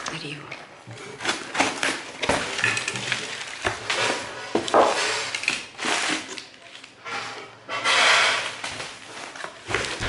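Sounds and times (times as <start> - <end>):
newspaper rustling and crackling: 8.4 - 10.0.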